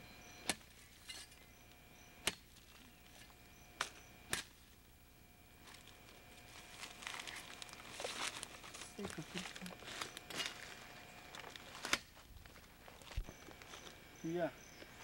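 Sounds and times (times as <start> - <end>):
machete chopping vine: 0.4 - 0.7, 2.2 - 2.5, 3.8 - 4.6
leaves rustling: 5.6 - 14.2.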